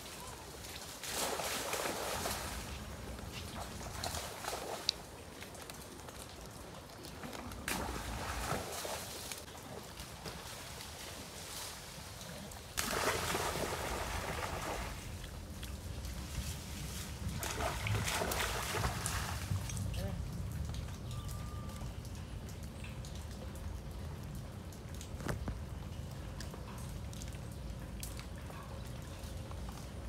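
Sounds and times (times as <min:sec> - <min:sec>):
steady rain falling: 0:04.7 - 0:12.9, 0:19.4 - 0:30.0.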